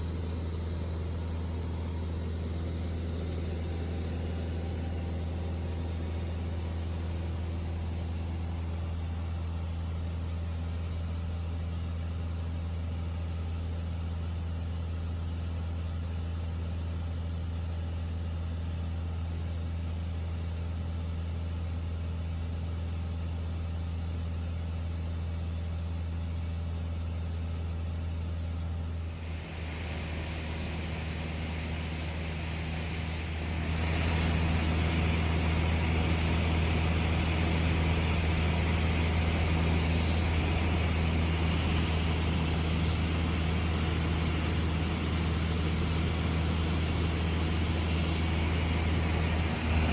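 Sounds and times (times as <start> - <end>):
aircraft engine and propeller droning: 0.0 - 11.4, 28.5 - 49.9.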